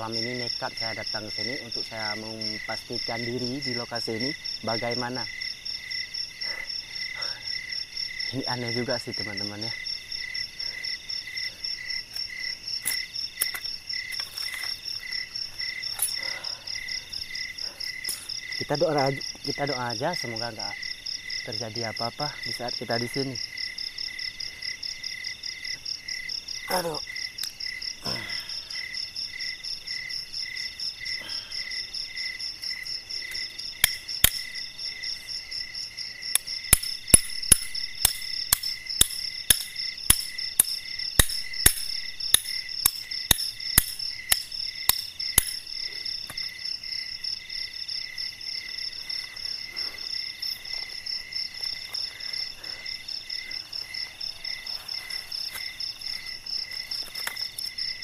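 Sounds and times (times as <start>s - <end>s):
crickets chirping: 0.0s - 58.0s
machete chopping bamboo: 33.8s - 34.6s, 36.4s - 45.7s.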